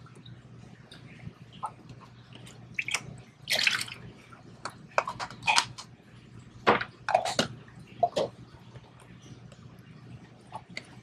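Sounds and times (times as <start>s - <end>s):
water dripping into plastic tub: 0.0s - 5.8s.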